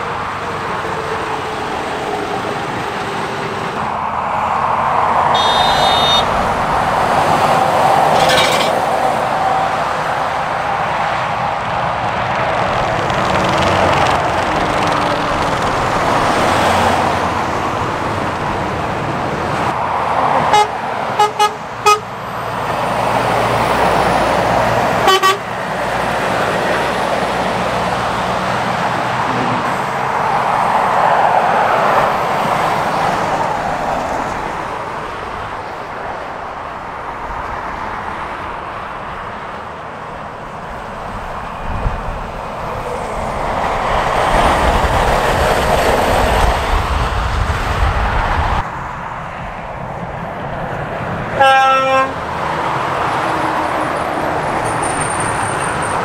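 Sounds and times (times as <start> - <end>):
traffic passing at speed: 0.0 - 56.0
horn toots: 5.3 - 6.6, 8.1 - 8.8, 20.5 - 22.1, 25.0 - 25.5, 51.4 - 52.2.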